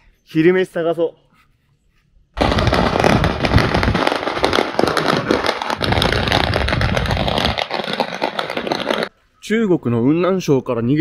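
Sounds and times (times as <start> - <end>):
firecrackers crackling: 2.4 - 9.1.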